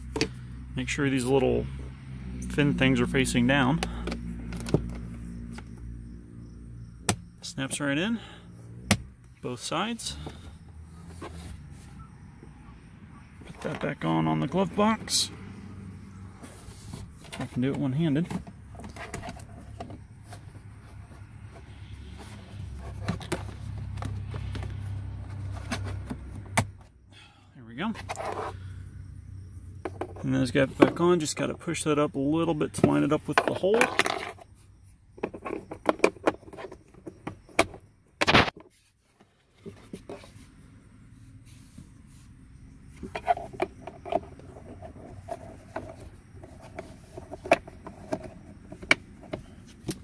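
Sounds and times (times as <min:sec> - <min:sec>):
plastic parts rubbing: 0:09.6 - 0:12.0, 0:16.4 - 0:26.4, 0:27.9 - 0:28.7, 0:32.7 - 0:34.6, 0:35.2 - 0:40.6, 0:42.9 - 0:50.0.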